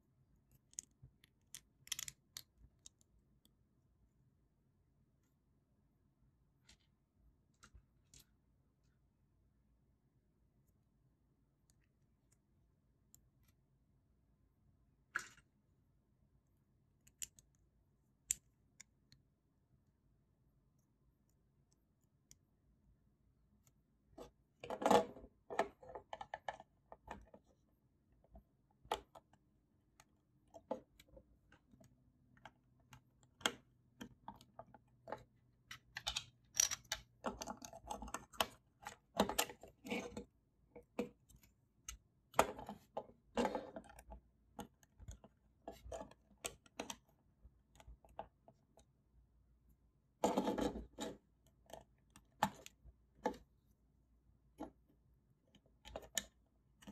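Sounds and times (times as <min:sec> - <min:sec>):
plastic bricks clicking and snapping: 0:00.5 - 0:03.1, 0:32.9 - 0:40.0.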